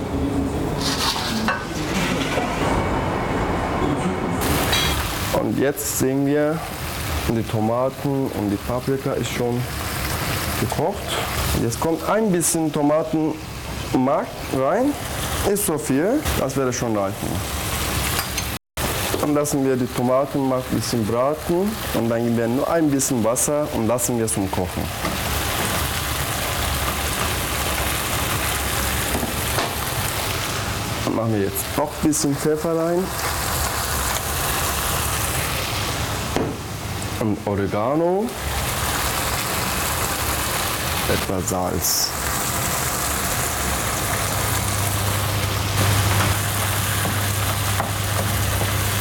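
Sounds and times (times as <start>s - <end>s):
wooden spoon scraping pan: 0.8s - 2.4s
vegetables sizzling in a frying pan: 4.4s - 16.5s, 17.1s - 37.2s, 38.2s - 49.0s.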